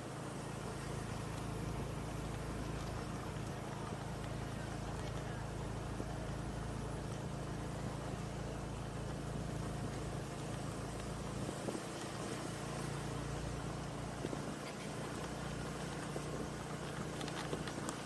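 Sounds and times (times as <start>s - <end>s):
motorcycle engine running: 0.0s - 18.0s
road noise: 0.0s - 18.0s
wind noise on microphone: 11.3s - 12.4s.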